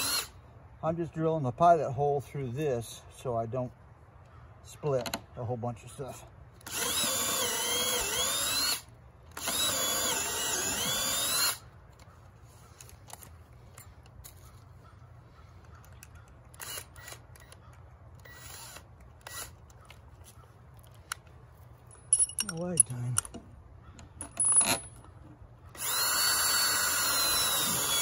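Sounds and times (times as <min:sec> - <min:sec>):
cordless drill boring into wood: 0:00.0 - 0:00.3, 0:06.6 - 0:11.6, 0:16.6 - 0:17.6, 0:18.2 - 0:19.6, 0:25.7 - 0:28.0
handling clicks and knocks: 0:19.0 - 0:25.4.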